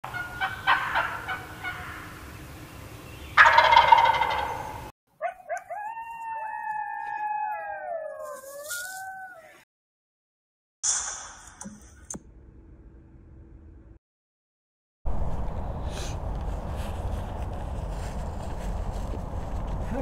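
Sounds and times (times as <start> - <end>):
turkey gobbling: 0.1 - 2.2, 3.4 - 6.0
coyotes howling: 0.2 - 2.2, 3.4 - 9.6.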